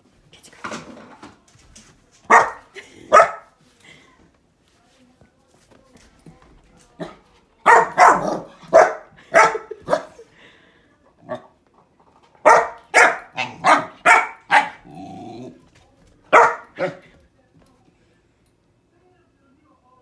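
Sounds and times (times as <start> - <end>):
puppy barking: 2.3 - 3.5, 7.0 - 10.2, 12.4 - 14.9, 16.3 - 17.0
puppy growling: 13.4 - 15.7.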